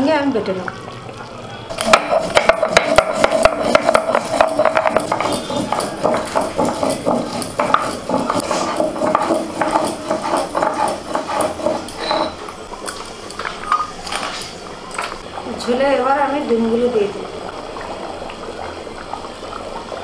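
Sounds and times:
stone roller grinding on stone: 1.8 - 12.5.

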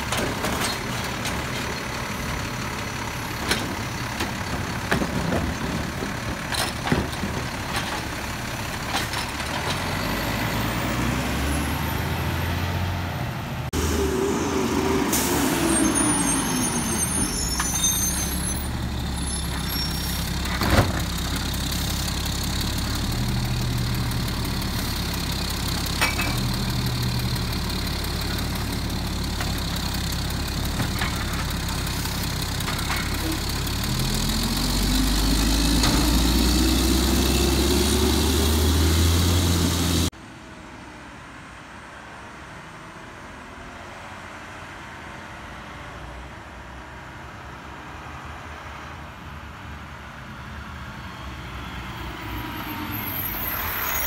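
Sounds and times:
diesel engine running: 0.0 - 40.1.

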